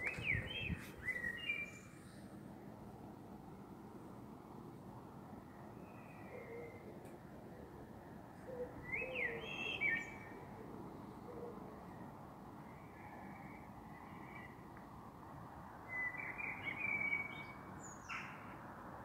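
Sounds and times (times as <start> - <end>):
birds chirping: 0.0 - 2.0, 8.8 - 10.4
steady background hiss: 0.0 - 19.0.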